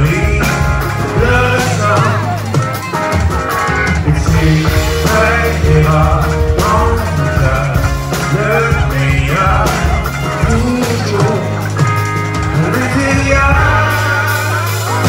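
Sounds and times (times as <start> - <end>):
man singing: 0.0 - 3.0, 3.9 - 15.0
rock band playing: 0.0 - 15.0.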